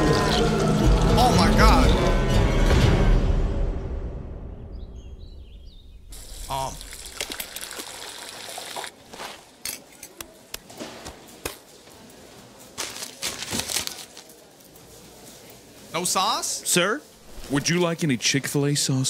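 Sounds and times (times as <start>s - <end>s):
wet squishing and squelching: 6.2s - 9.6s
sharp slaps and clicks: 10.2s - 10.8s.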